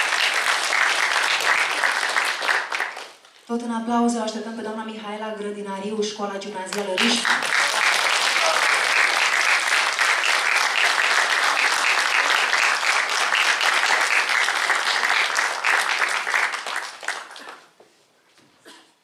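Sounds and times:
audience applauding: 0.0 - 3.3, 6.8 - 17.8.

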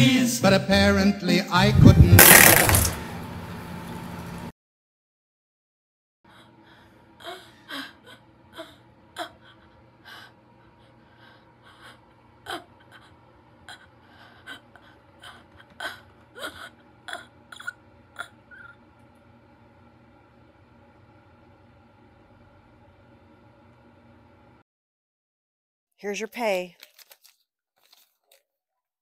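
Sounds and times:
faint steady hum: 6.3 - 24.6.

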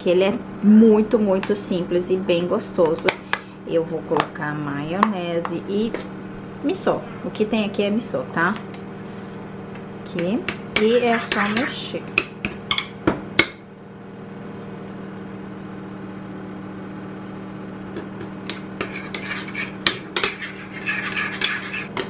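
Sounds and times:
steady low hum: 0.0 - 22.0
metal spoon scraping glass: 10.8 - 11.8, 18.5 - 22.0.

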